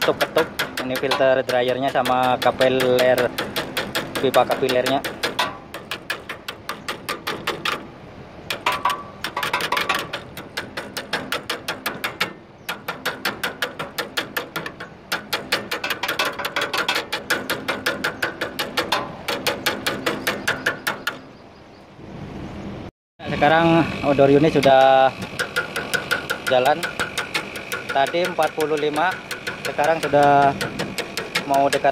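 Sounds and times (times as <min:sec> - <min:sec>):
pliers tapping on copper pipe: 0:00.0 - 0:07.8, 0:24.5 - 0:31.9.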